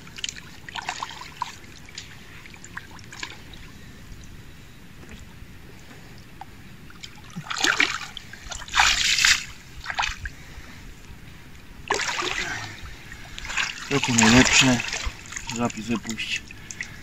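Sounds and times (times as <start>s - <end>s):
water splashing: 0.0s - 3.9s, 6.9s - 10.6s, 11.8s - 17.0s.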